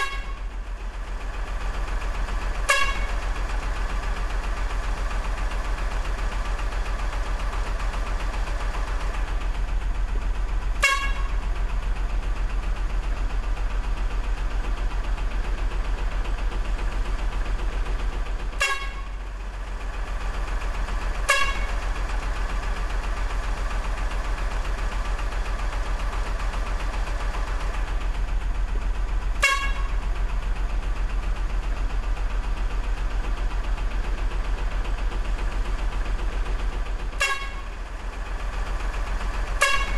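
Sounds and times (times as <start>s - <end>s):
truck horn toots: 0.0s - 0.5s, 2.5s - 3.2s, 10.8s - 11.4s, 18.6s - 19.2s, 21.2s - 21.8s, 29.4s - 30.0s, 37.2s - 37.7s, 39.5s - 39.9s
truck engine drone: 0.0s - 39.9s.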